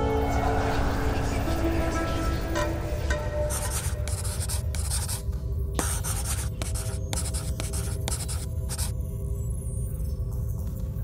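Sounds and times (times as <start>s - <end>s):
low steady drone: 0.0s - 5.8s
pen scratching on paper: 3.5s - 5.2s, 5.8s - 8.9s.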